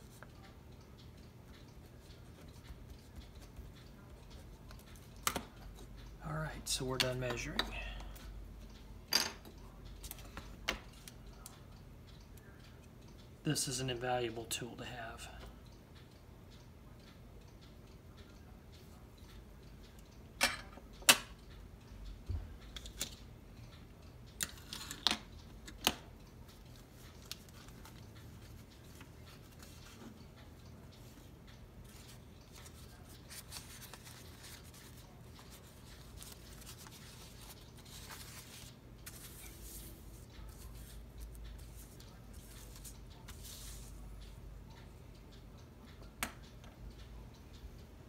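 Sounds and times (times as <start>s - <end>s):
tools clicking and tapping: 0.0s - 6.2s, 6.8s - 8.3s, 19.2s - 44.9s
faint rustling and scratching: 41.6s - 44.1s.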